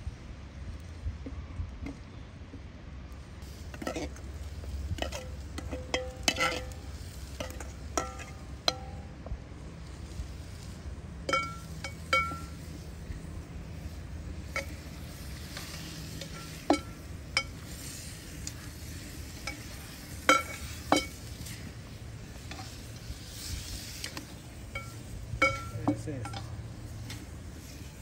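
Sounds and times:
faint sizzle of frying food: 0.0 - 28.0
metal spoon clinking in pot: 5.0 - 6.8, 7.4 - 9.0, 11.3 - 12.6, 24.7 - 26.6.

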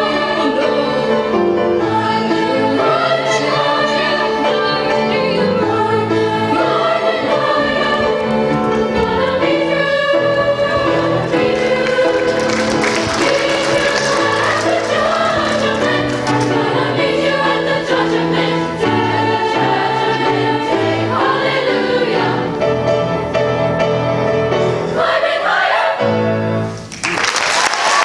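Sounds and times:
choir singing in harmony: 0.0 - 26.8
piano accompaniment: 0.0 - 27.2
audience applause: 11.3 - 16.8, 26.9 - 28.0.

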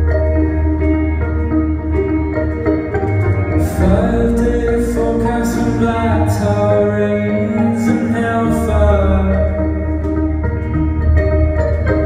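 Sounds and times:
live band music: 0.0 - 12.0
person singing: 3.6 - 10.4.

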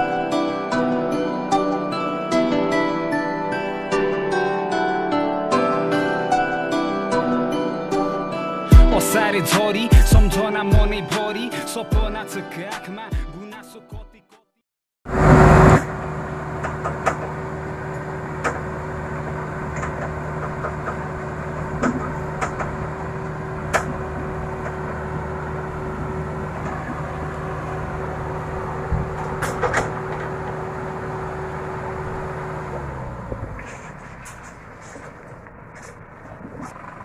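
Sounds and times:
loud burst of noise: 15.1 - 17.6
diesel engine running: 15.1 - 37.0
clanks and knocks: 19.7 - 25.1, 28.9 - 30.7.

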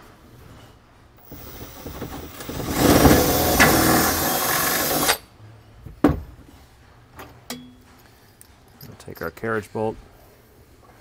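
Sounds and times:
cordless drill boring through wood: 1.2 - 5.2.

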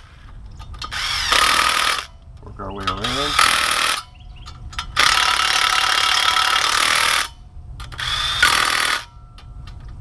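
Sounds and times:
impact driver running bolts: 2.8 - 4.0.

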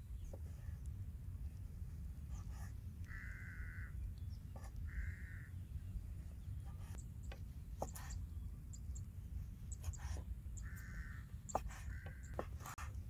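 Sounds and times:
steady low rumble: 0.0 - 13.0
crow cawing: 3.1 - 4.0, 4.9 - 5.6, 10.6 - 12.5.

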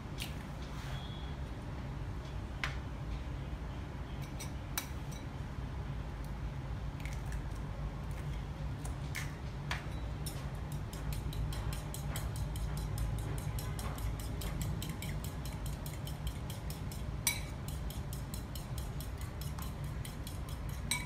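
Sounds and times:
steady low hum: 0.0 - 21.0
spoon beating eggs in bowl: 7.0 - 21.0.

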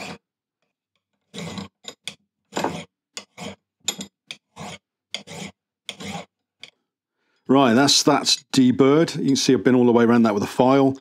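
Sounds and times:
hand file rasping on iron: 0.0 - 0.3, 1.2 - 6.8.

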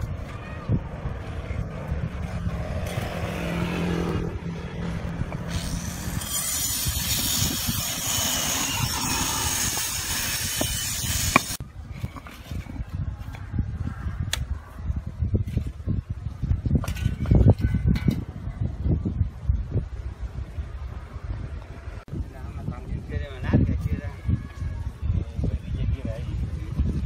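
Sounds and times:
engine-like rumble: 0.0 - 6.2.

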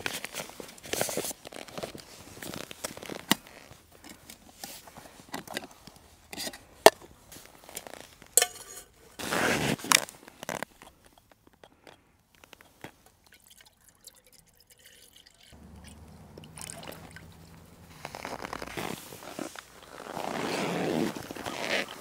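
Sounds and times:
utensils clinking: 8.4 - 9.2.

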